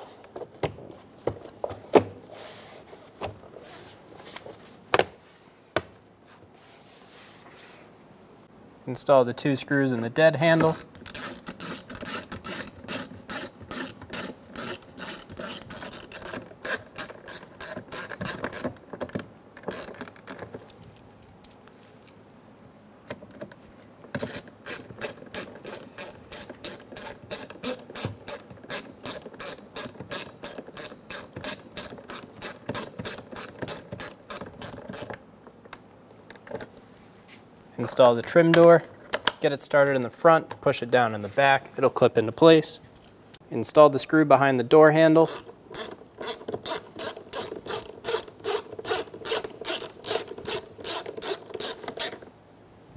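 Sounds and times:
hand ratchet clicking: 10.6s - 18.8s, 19.6s - 20.0s, 24.1s - 35.2s, 45.2s - 52.3s.

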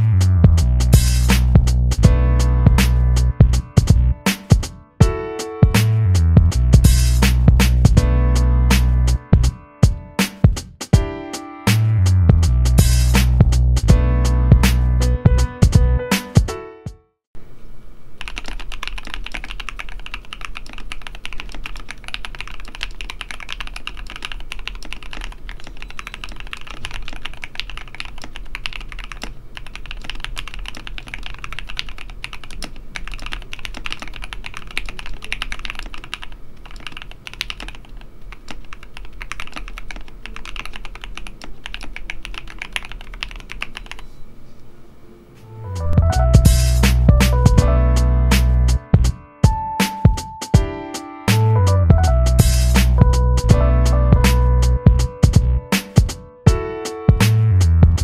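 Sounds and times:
mechanical keyboard typing: 18.2s - 44.1s.

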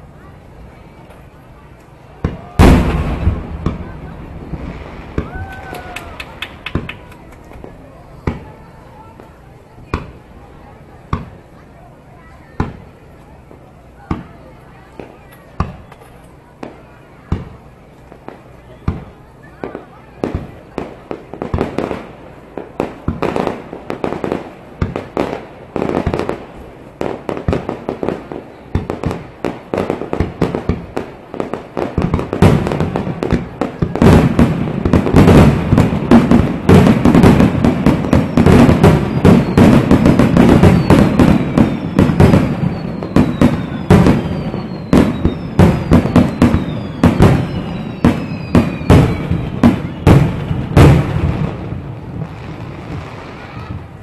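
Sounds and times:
fireworks bangs: 0.2s - 54.0s
high falling whistles: 40.7s - 50.1s.

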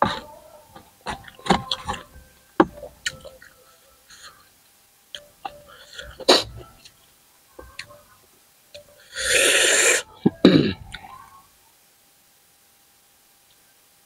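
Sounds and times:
loud breathy hiss: 9.1s - 10.2s.

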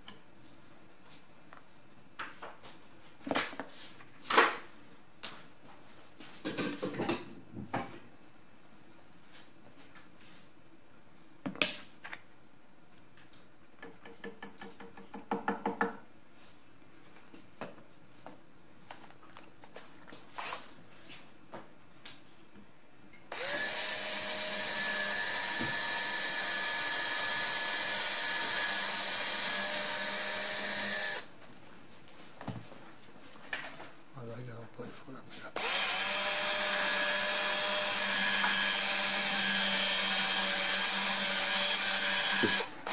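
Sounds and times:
electric drill running: 23.3s - 31.3s, 35.6s - 42.9s.

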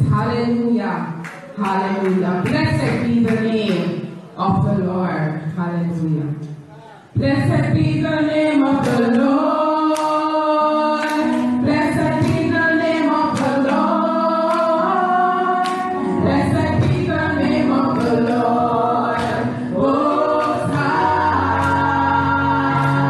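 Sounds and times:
sharp handclaps: 1.2s - 3.9s, 11.0s - 11.4s, 13.3s - 13.8s, 15.6s - 15.9s, 18.0s - 18.4s, 19.2s - 19.5s, 20.1s - 20.8s
women singing gospel song: 7.2s - 23.0s.

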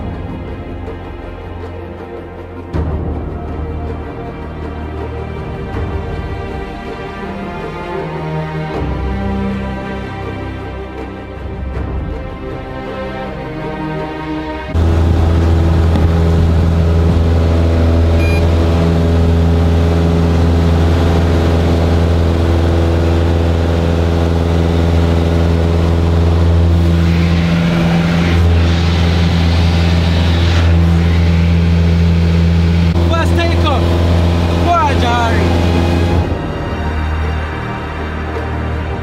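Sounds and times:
aircraft engine drone: 14.6s - 39.0s
rushing noise: 14.7s - 38.1s.

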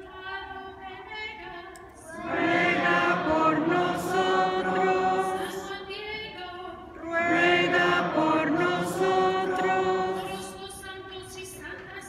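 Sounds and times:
congregation singing: 1.7s - 11.9s.

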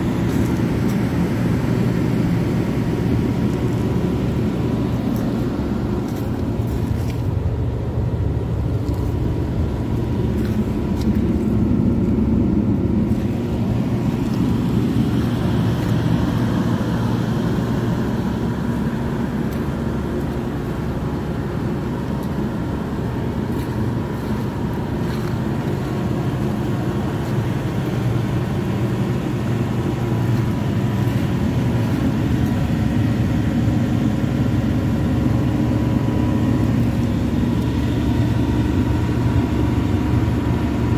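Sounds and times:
diesel engine rumbling: 0.0s - 40.9s.

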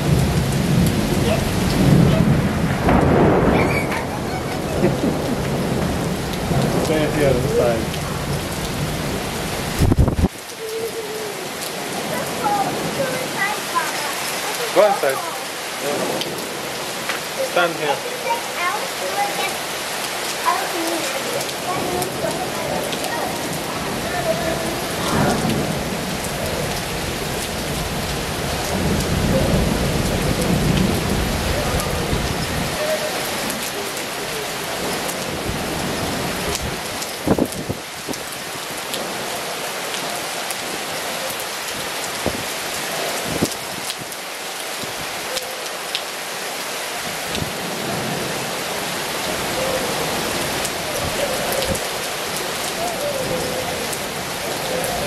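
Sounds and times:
heavy rain falling: 0.0s - 55.0s
raindrops tapping close by: 0.0s - 55.0s.

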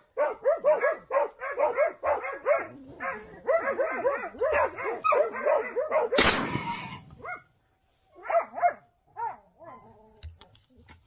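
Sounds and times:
hunting dogs baying: 0.0s - 6.2s
shotgun shot: 6.2s - 7.2s.

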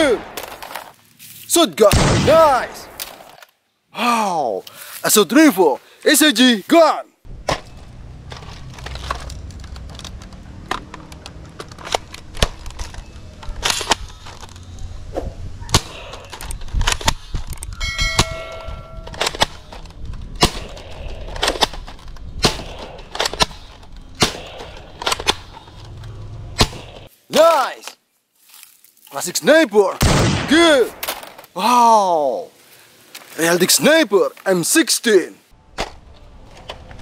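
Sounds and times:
toy blaster clacking and snapping: 16.2s - 17.7s, 19.1s - 25.6s
chime of steady tones: 17.8s - 19.1s.

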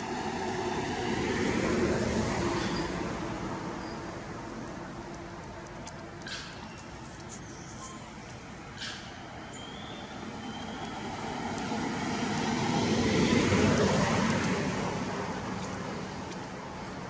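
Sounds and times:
vehicle engine passing by: 10.9s - 16.2s.

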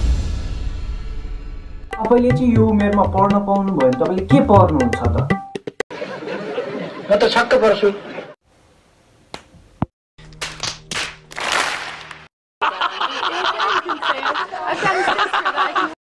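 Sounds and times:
old man laughing heartily: 12.6s - 16.0s.

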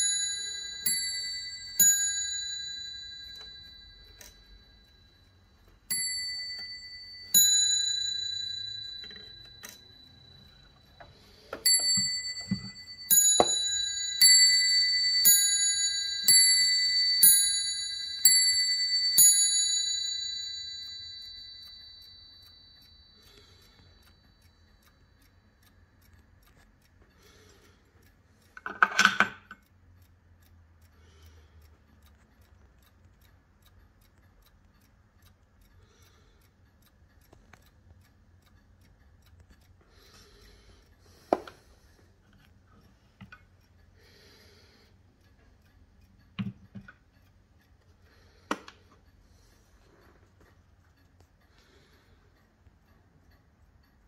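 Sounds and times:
clock striking on bells: 0.0s - 5.0s, 5.8s - 23.6s
clock ticking faintly: 0.0s - 54.0s.

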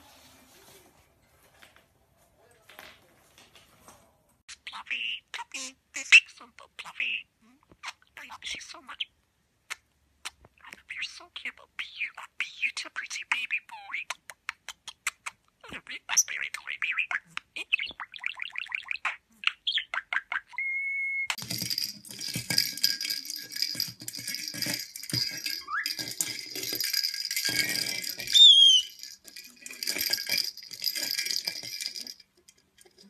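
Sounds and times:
bird whistle: 20.5s - 21.4s, 28.3s - 29.0s
plastic ball toy rattling on floor: 21.4s - 33.0s.

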